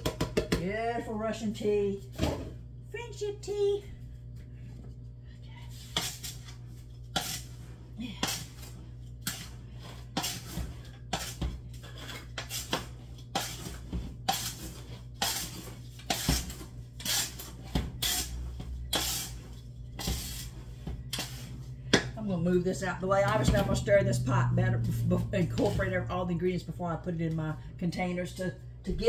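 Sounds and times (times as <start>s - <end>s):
spoon scraping metal pot: 17.0s - 21.6s.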